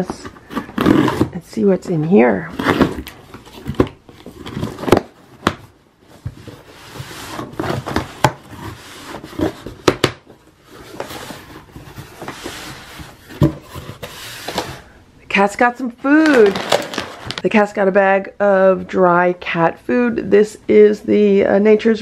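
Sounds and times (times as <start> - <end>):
rustling of bagged cat food: 16.1 - 17.4.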